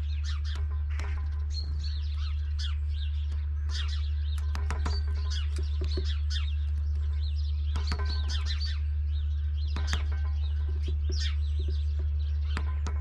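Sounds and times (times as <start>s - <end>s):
small birds chirping: 0.0s - 13.0s
steady low hum: 0.0s - 13.0s.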